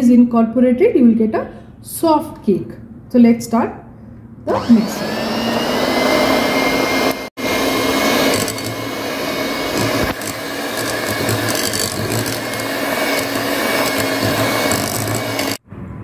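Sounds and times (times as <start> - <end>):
electric hand mixer running: 4.5 - 15.6.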